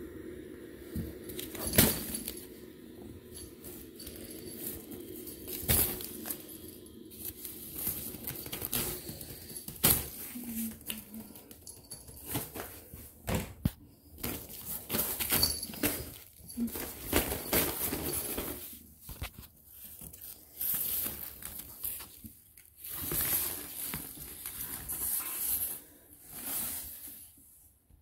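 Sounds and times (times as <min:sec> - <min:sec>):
fabric tunnel rustling: 0:03.4 - 0:11.4.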